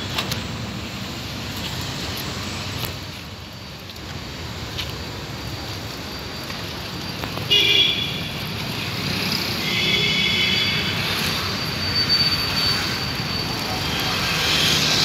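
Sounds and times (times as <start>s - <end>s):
street traffic noise: 0.0s - 15.0s
vehicle horn honking: 7.5s - 8.3s, 9.6s - 11.0s.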